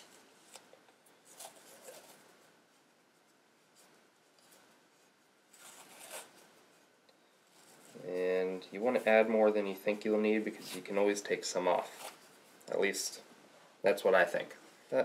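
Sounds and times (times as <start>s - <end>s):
masking tape peeling off roll: 5.5s - 6.4s.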